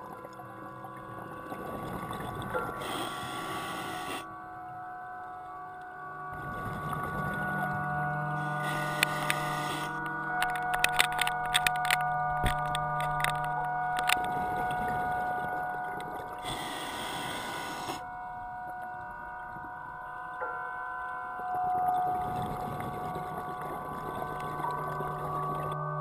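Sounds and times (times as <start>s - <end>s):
underwater whining hum: 0.0s - 26.0s
diver regulator breath hiss: 2.6s - 4.3s, 8.4s - 10.0s, 16.4s - 18.1s.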